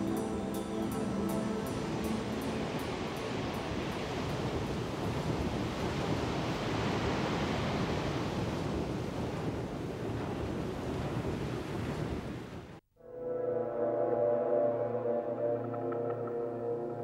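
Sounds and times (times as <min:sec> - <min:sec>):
sea and wind rushing: 0:00.0 - 0:12.8.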